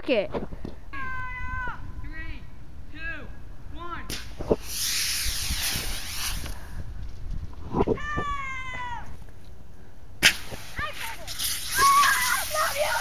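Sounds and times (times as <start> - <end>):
water rocket hissing: 4.1 - 6.7, 10.2 - 13.0.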